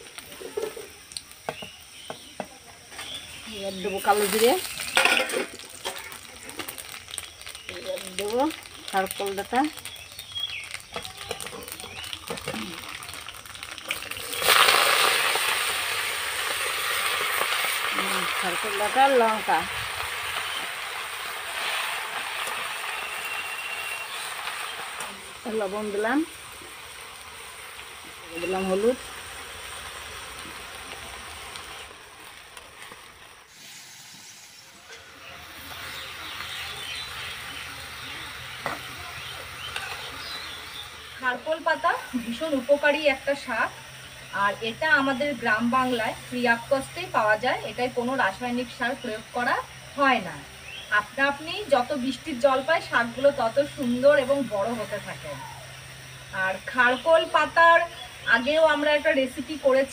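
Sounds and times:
food sizzling in hot oil: 0.0 - 59.9
metal spatula scraping a pan: 4.7 - 6.0.

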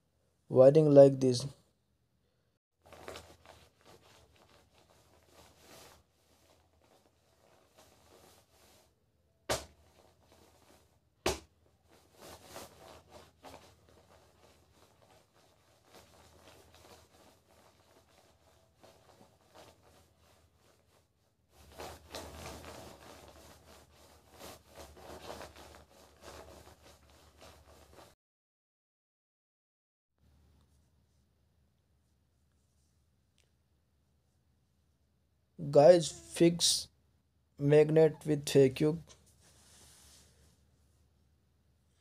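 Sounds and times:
rustling: 2.8 - 8.9, 9.7 - 11.0, 11.6 - 28.1.

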